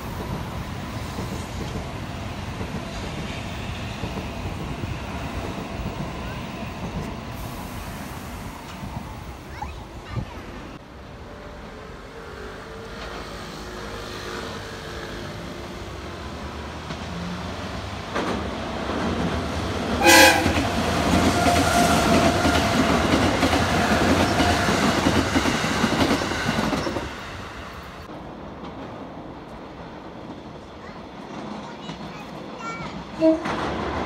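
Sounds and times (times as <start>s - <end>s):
train wheel clatter and rumble: 0.0s - 10.8s, 14.5s - 34.0s
train horn blast: 20.0s - 22.2s, 33.2s - 33.6s.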